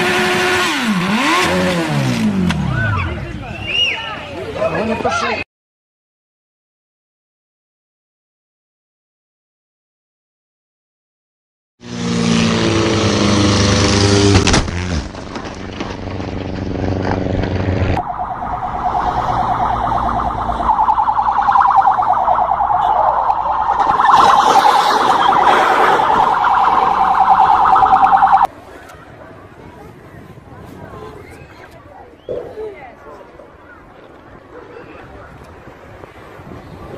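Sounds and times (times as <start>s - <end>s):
warbling electronic alarm: 18.0s - 28.5s.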